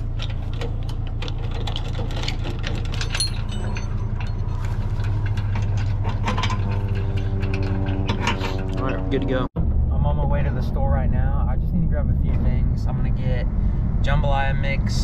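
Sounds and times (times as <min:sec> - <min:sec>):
metal chains clinking and rattling: 0:00.0 - 0:09.2.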